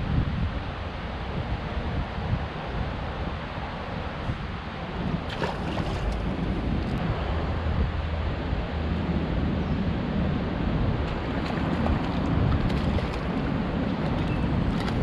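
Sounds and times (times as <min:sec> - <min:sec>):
wind buffeting microphone: 0:00.0 - 0:15.0
river water rushing: 0:11.1 - 0:15.0.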